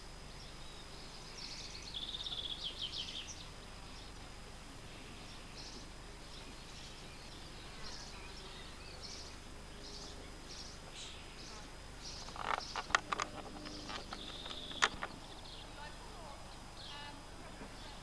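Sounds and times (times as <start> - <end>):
faint outdoor ambience: 0.0 - 18.0
bird chirping: 0.3 - 4.2, 5.0 - 18.0
camera handling clicks and knocks: 12.2 - 15.2.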